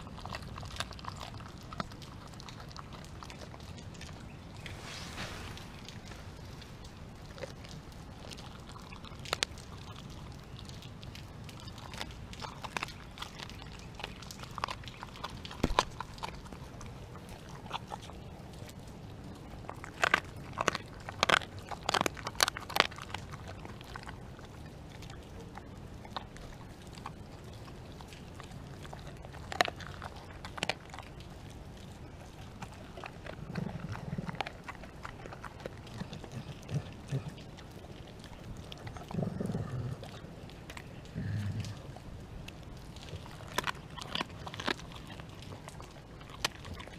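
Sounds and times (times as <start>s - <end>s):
dog crunching bones: 0.0s - 46.9s.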